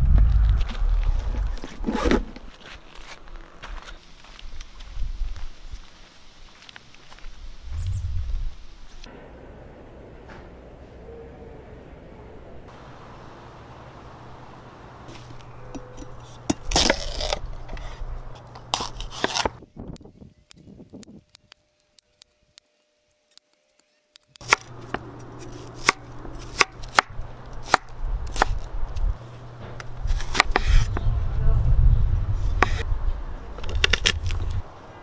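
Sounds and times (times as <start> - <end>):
knife cutting rind on board: 18.7 - 19.6, 30.1 - 30.9.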